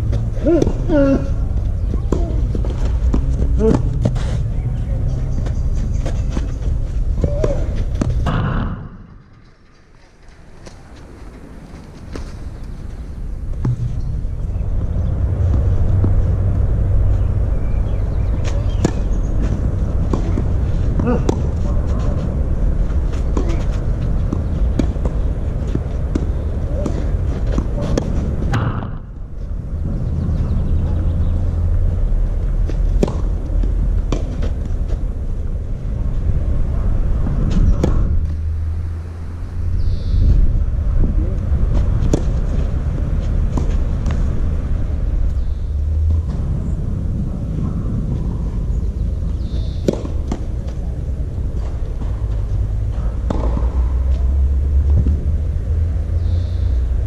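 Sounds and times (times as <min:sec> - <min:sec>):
balls bouncing on clay court: 0:00.0 - 0:09.7, 0:13.5 - 0:29.6, 0:30.4 - 0:38.8, 0:41.2 - 0:46.6, 0:47.5 - 0:56.1
wind rumble on microphone: 0:00.0 - 0:57.0
tennis balls struck by rackets: 0:00.1 - 0:04.3, 0:05.3 - 0:09.3, 0:13.5 - 0:17.1, 0:18.2 - 0:29.6, 0:32.4 - 0:35.6, 0:37.0 - 0:38.7, 0:41.4 - 0:45.4, 0:47.5 - 0:56.1
tennis ball struck by racket: 0:07.2 - 0:09.2, 0:18.4 - 0:22.2, 0:23.0 - 0:29.1, 0:32.6 - 0:34.6, 0:41.7 - 0:42.8, 0:49.8 - 0:50.9, 0:52.9 - 0:54.2.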